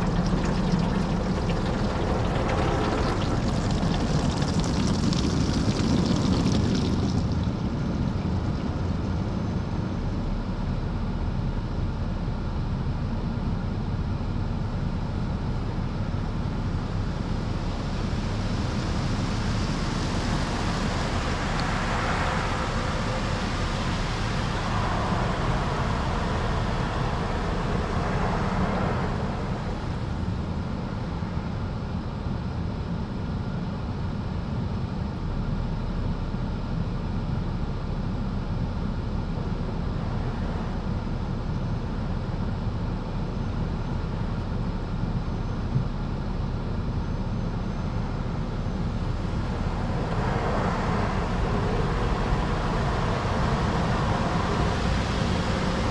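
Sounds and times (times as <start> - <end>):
water spraying on car: 0.0 - 8.4, 18.0 - 30.1, 49.1 - 55.9
steady low rumble: 0.0 - 55.9.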